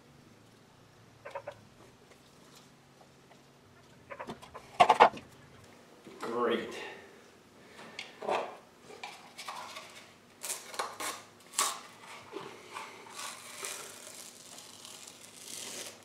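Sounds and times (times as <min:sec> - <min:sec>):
masking tape peeling: 0:09.8 - 0:12.2, 0:12.8 - 0:16.0.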